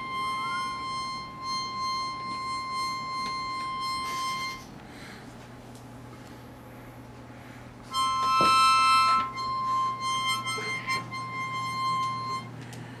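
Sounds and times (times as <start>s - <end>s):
harmonica chord: 0.0s - 5.3s, 7.4s - 13.0s.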